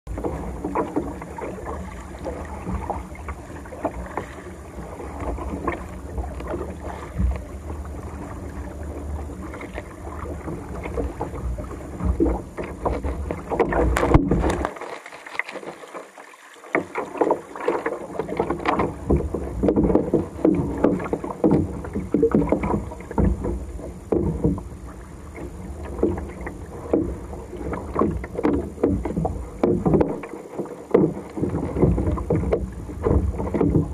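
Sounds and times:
wind rumbling on microphone: 0.1s - 14.7s
water splashing against kayak: 0.1s - 33.9s.

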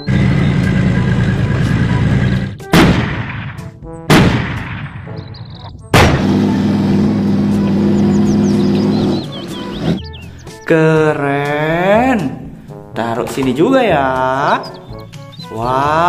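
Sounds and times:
tank engine droning: 0.0s - 2.6s, 6.0s - 10.0s
loud cannon shots: 2.6s - 5.3s, 5.9s - 6.8s.

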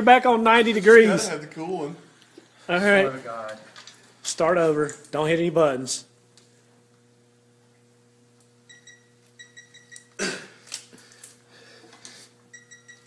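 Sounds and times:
person grunting with effort: 10.2s - 10.6s.

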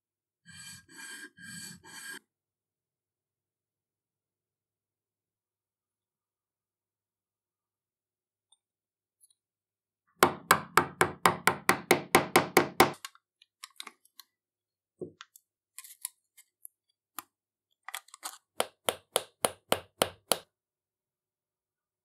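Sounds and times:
hammer tapping plug: 18.6s - 20.5s.

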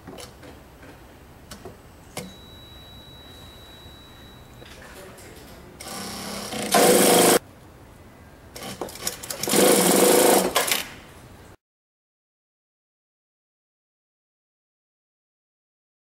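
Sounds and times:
industrial sewing machine stitching: 5.8s - 7.4s, 8.6s - 10.8s.

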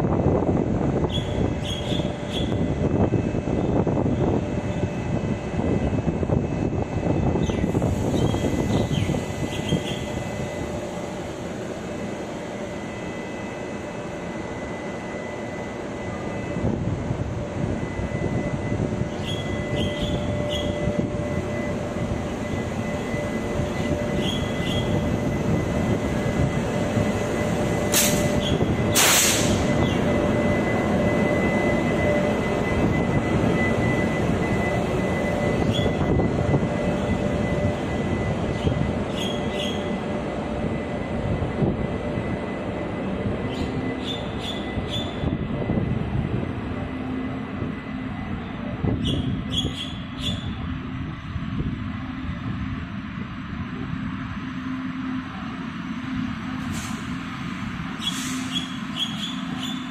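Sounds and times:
electric locomotive whine: 0.0s - 59.9s
train rumble: 0.0s - 59.9s
loud bursts of hiss: 27.9s - 29.7s.

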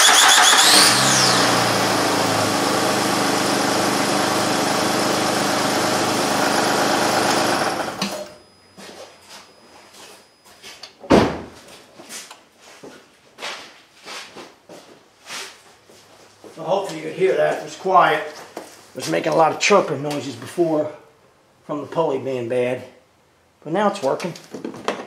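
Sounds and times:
car engine idling: 0.0s - 8.4s
sharp thump: 11.1s - 11.6s.

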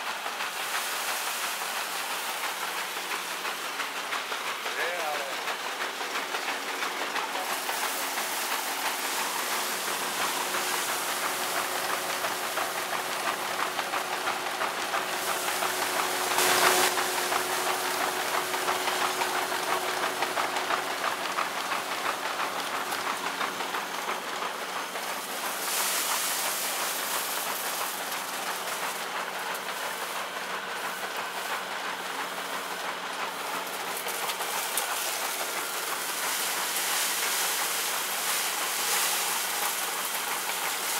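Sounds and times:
threshing machine humming and rattling: 0.0s - 40.9s.

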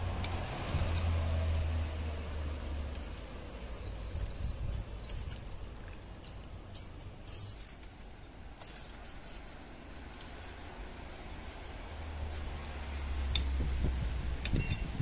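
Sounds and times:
small birds chirping: 2.3s - 12.4s, 13.2s - 15.0s.

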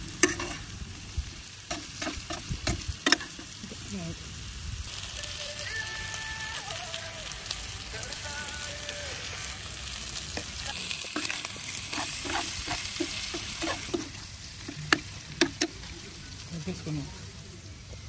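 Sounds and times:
chicken sizzling in a pan: 0.0s - 18.0s
metal spoon scraping a pan: 0.2s - 0.7s, 10.4s - 15.8s.

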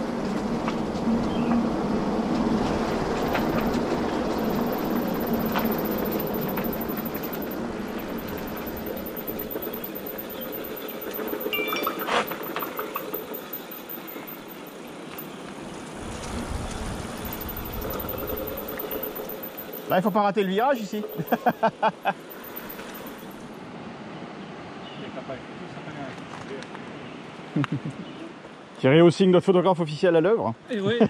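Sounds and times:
bike tyres rumbling and rattling: 0.0s - 21.6s.

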